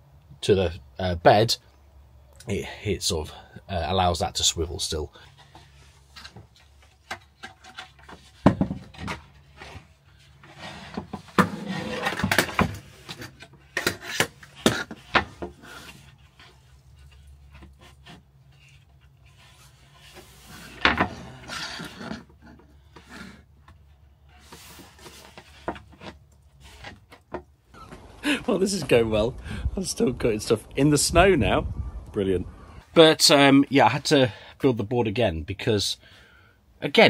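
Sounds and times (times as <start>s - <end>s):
wood scraping and rubbing: 5.3s - 29.0s.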